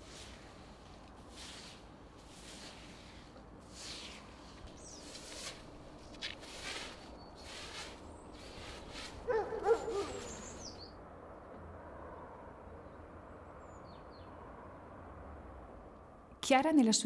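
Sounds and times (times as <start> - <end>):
broom sweeping leaves: 0.0 - 10.8
wavering animal cry: 9.2 - 10.6
bird chirps: 9.4 - 11.0.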